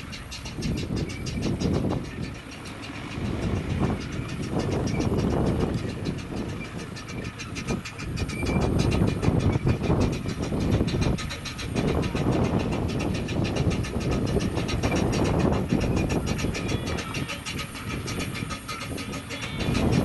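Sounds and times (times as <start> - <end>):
steam train running: 0.0 - 20.0.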